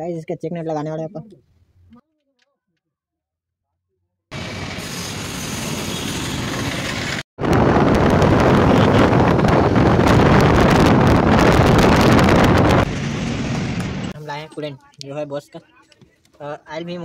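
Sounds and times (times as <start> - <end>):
street noise: 4.3 - 16.4
wind rushing over microphone: 6.5 - 14.2.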